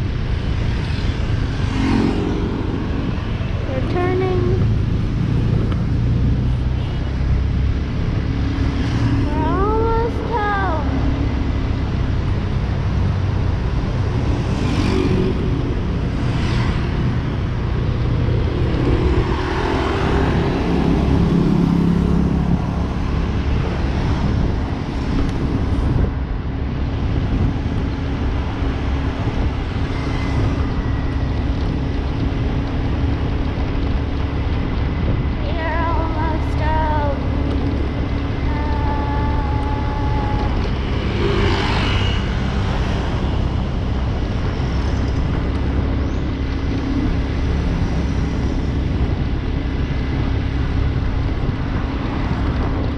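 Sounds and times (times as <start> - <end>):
road and wind noise: 0.0 - 52.9
vehicles passing: 0.0 - 52.9
motorcycle engine running: 27.2 - 52.9.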